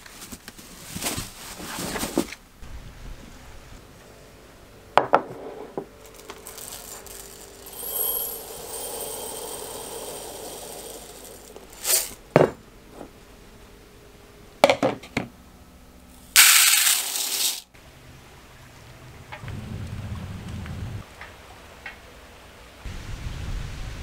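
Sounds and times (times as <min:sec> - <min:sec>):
steady hiss: 0:06.0 - 0:12.3.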